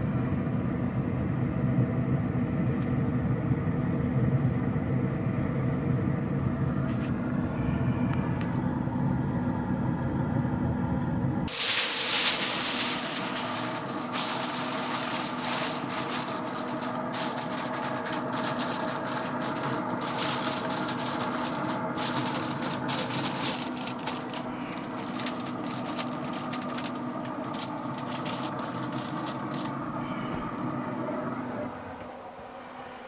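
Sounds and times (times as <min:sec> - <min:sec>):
steady hum: 0:00.0 - 0:33.0
aluminium foil crinkling: 0:11.5 - 0:30.0.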